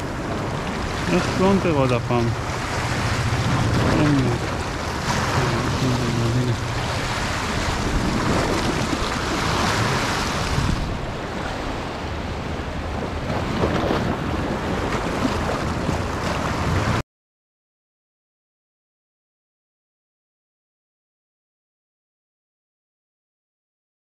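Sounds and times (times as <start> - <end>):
sea rushing: 0.0 - 17.0
wind buffeting microphone: 0.0 - 17.0.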